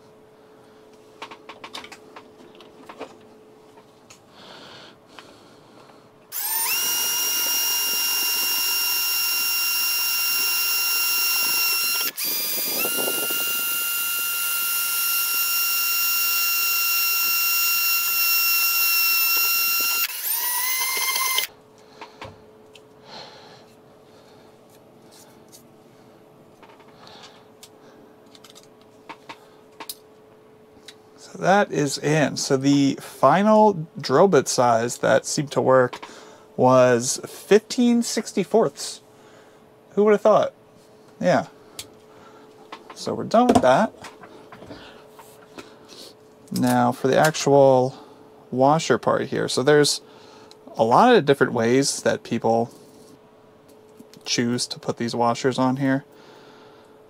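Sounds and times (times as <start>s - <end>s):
cordless drill running: 6.3s - 21.5s.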